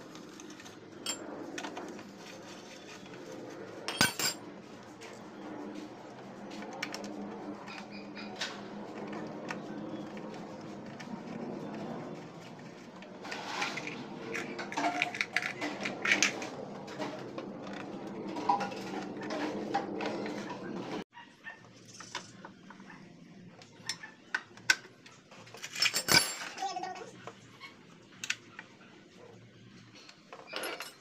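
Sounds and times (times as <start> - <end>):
metal tools and bolts clinking: 0.5 - 1.3, 3.9 - 4.4, 25.3 - 26.8, 30.3 - 31.0.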